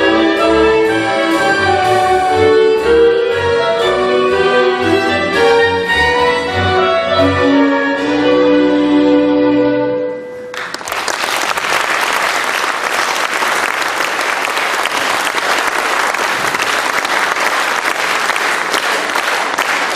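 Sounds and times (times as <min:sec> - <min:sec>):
orchestra strings chord: 0:00.0 - 0:10.5
audience applause: 0:10.5 - 0:19.9.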